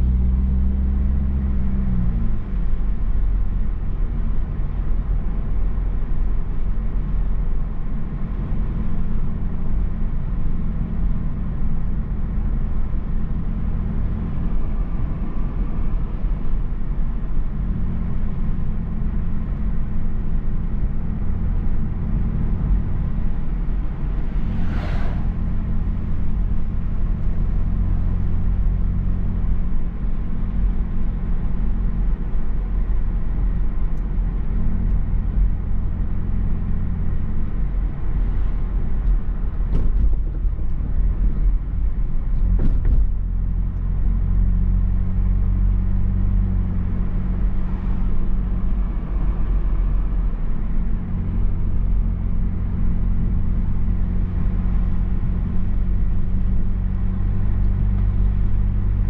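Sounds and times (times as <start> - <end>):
car engine and tyres rumbling: 0.0 - 59.0
brief hiss: 24.5 - 25.5.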